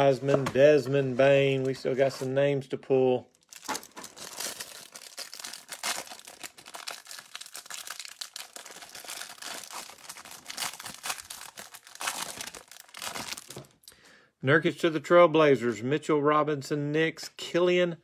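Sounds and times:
cellophane wrapper crinkling and tearing: 0:03.3 - 0:13.8.

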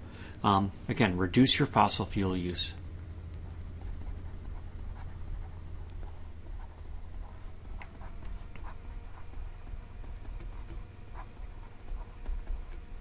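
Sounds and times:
low electrical hum: 0:00.0 - 0:13.0
stylus tapping and scratching: 0:02.7 - 0:13.0.

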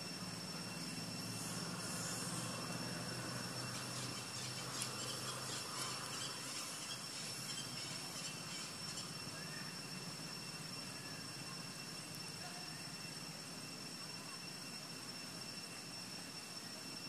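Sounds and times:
low hum: 0:00.0 - 0:13.5
high-pitched insect drone: 0:00.0 - 0:17.0.

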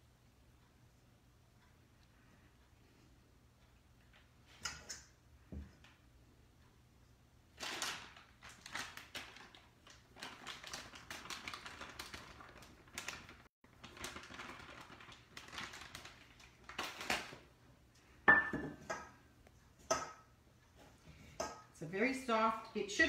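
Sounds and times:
paper bag rustling: 0:07.6 - 0:17.4
cup clinking on steel bowl: 0:18.3 - 0:19.1.

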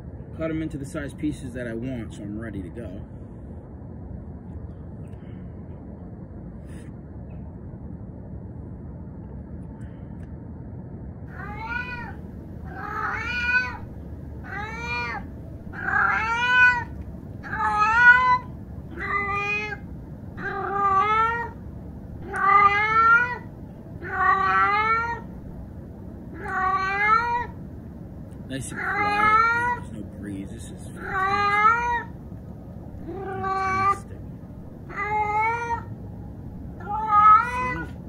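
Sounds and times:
cat meowing: 0:11.3 - 0:19.8, 0:20.4 - 0:21.6, 0:22.2 - 0:25.3, 0:26.3 - 0:27.6, 0:28.7 - 0:29.9, 0:30.9 - 0:32.1, 0:33.0 - 0:34.2, 0:34.8 - 0:35.9, 0:36.8 - 0:38.0.

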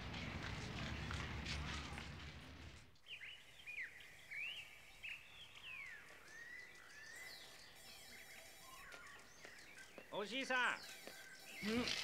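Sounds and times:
crowd footsteps: 0:00.0 - 0:03.0, 0:08.8 - 0:12.0
small birds chirping faintly: 0:02.9 - 0:12.0.

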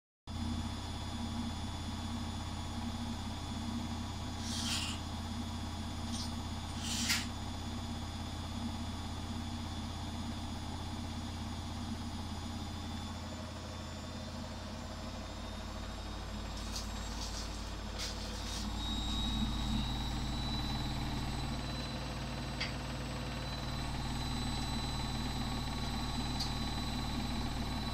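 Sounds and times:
high whine: 0:03.9 - 0:07.6, 0:13.0 - 0:22.8
brief hissing: 0:04.4 - 0:05.0, 0:06.1 - 0:07.3.

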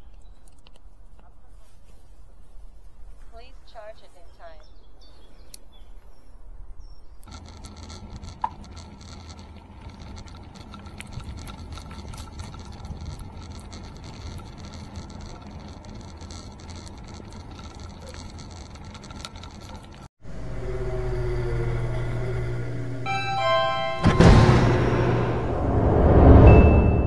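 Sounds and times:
bike rattling: 0:07.0 - 0:20.1
bike tyre rumbling on grass: 0:07.3 - 0:19.1.

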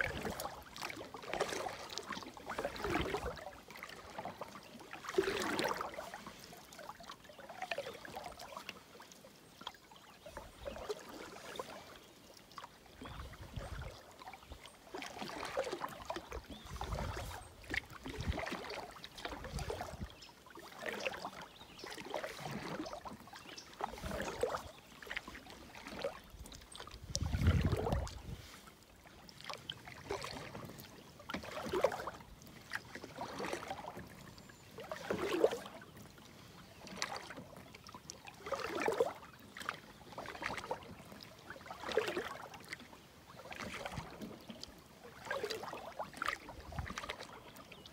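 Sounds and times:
canoe paddle strokes in water: 0:00.0 - 0:47.9.

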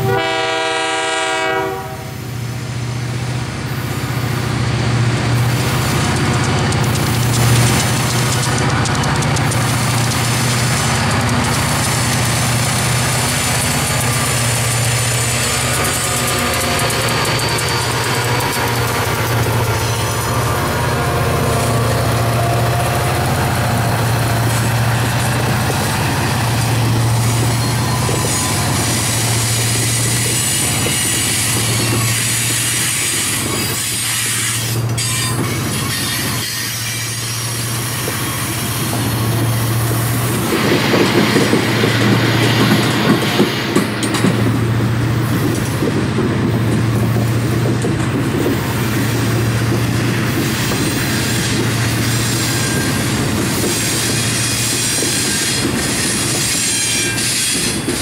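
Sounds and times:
rail cars rumbling: 0:00.0 - 0:58.0
wheel squeal: 0:06.0 - 0:43.1, 0:50.4 - 0:58.0.

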